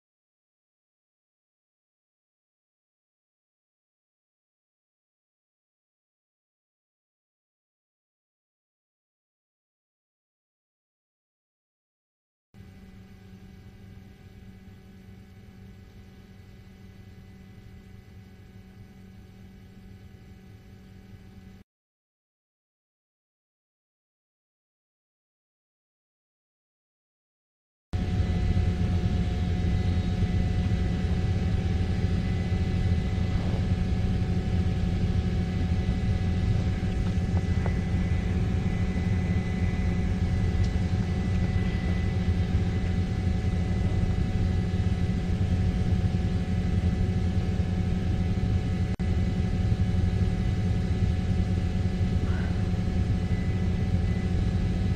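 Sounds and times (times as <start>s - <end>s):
helicopter engine and rotor: 12.6s - 21.6s, 28.0s - 54.9s.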